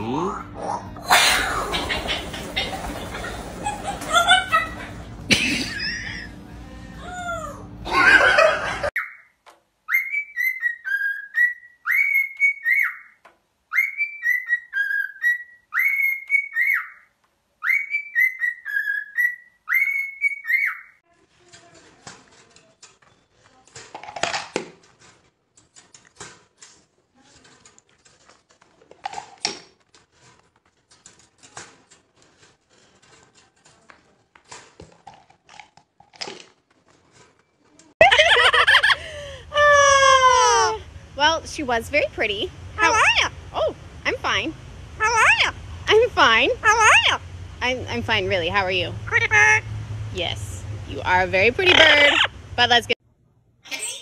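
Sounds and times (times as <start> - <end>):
parrot whistling: 9.9 - 20.9.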